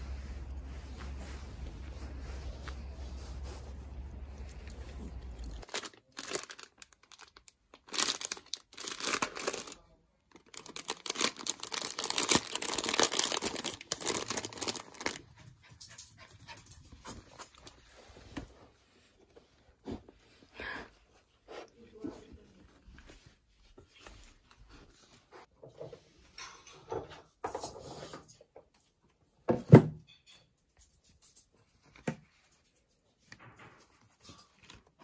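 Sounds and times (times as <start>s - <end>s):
low steady rumble: 0.0s - 5.6s
plastic bag crinkling: 3.8s - 15.4s.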